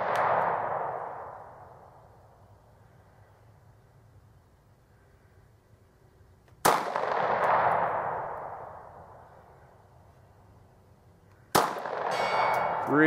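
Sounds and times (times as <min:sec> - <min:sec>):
handgun shots with echo: 0:06.6 - 0:08.2, 0:11.5 - 0:12.9.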